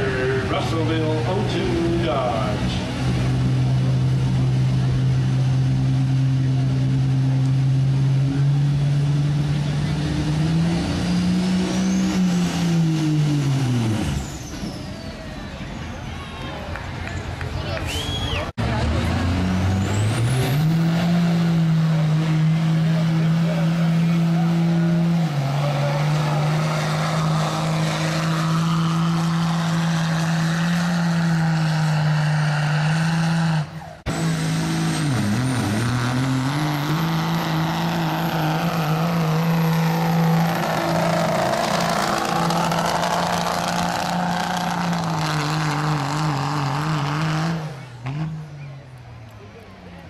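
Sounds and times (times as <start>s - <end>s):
diesel engine revving under load: 0.0s - 16.0s, 17.9s - 49.2s.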